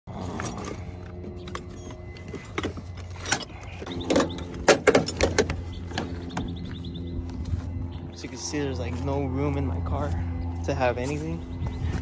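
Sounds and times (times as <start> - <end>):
steady low hum: 0.1 - 12.0
objects knocking and rattling: 0.6 - 6.1.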